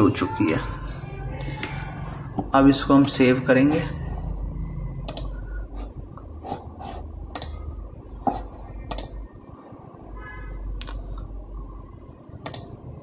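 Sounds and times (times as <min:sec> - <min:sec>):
steady low hum: 0:00.0 - 0:13.0
computer mouse clicking: 0:05.0 - 0:05.4, 0:07.3 - 0:07.7, 0:08.8 - 0:09.2, 0:12.4 - 0:12.8.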